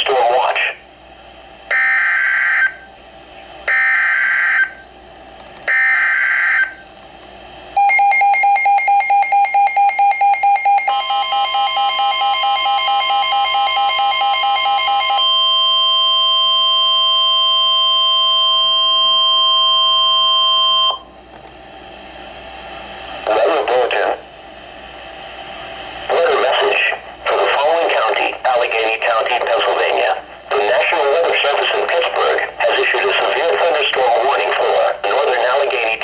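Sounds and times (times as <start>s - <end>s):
steady warning alarm tone: 1.7s - 2.9s, 3.6s - 4.9s, 5.7s - 6.8s, 7.8s - 21.1s
rapid electronic beeping: 7.8s - 16.0s.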